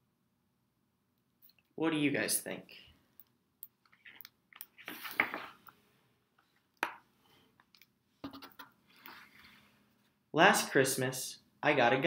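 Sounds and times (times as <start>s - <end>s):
book pages rustling: 3.9s - 5.6s.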